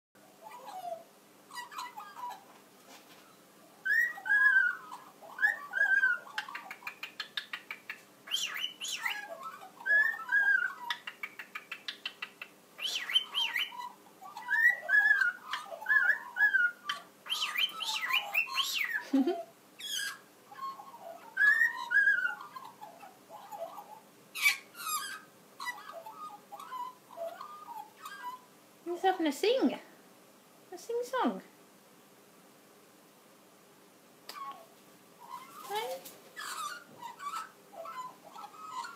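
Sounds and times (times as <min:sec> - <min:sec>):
birds whistling phrase: 0:03.8 - 0:07.0, 0:08.3 - 0:11.1, 0:12.8 - 0:19.0, 0:19.8 - 0:28.5.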